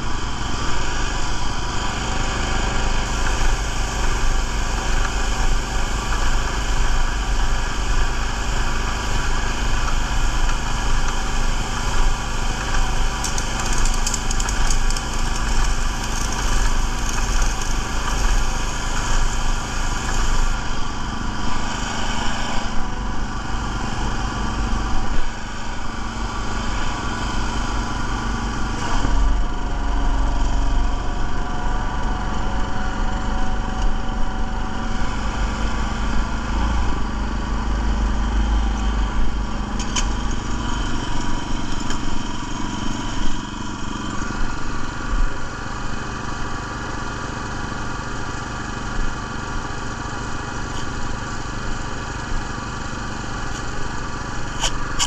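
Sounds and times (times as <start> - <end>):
small gas engine running: 0.0 - 55.0
spray gun hissing: 11.5 - 22.8.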